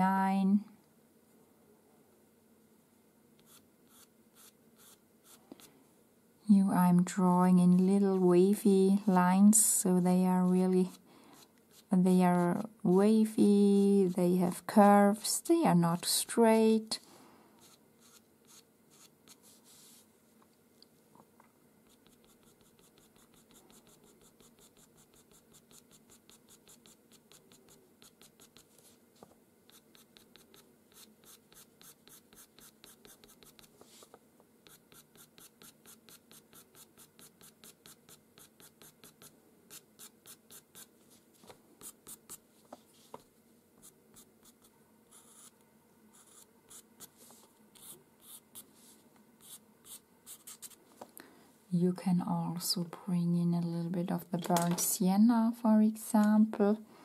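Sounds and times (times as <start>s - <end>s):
pencil scratching on paper: 3.4s - 5.4s, 11.7s - 11.9s, 17.6s - 20.0s, 21.8s - 29.0s, 29.7s - 34.0s, 34.6s - 40.9s, 41.8s - 42.4s, 43.8s - 48.7s, 49.4s - 50.8s.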